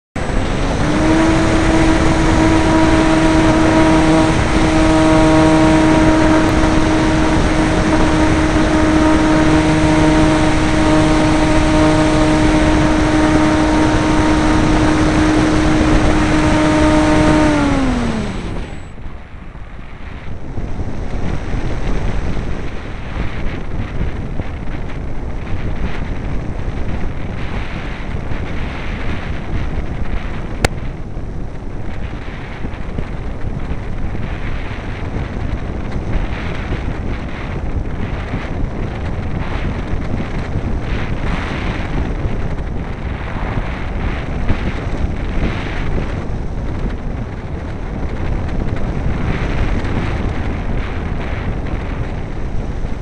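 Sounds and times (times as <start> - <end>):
propeller spinning down: 0.0 - 53.0
wind rushing over microphone: 0.0 - 53.0
electric motor whine: 0.2 - 19.3, 19.9 - 23.6.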